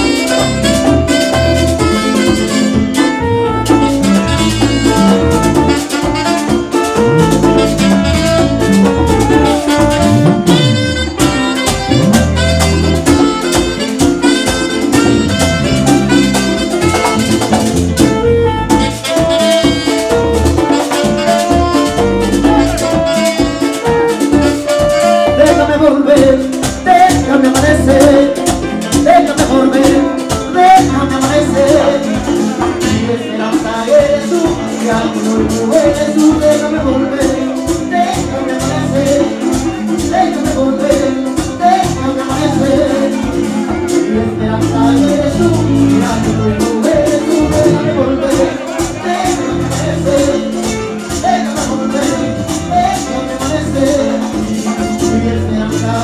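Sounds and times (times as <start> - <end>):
guira scraping: 0.0 - 23.8
bass: 0.0 - 56.0
drums: 0.0 - 56.0
electric guitar: 0.0 - 56.0
saxophone lead: 0.0 - 56.0.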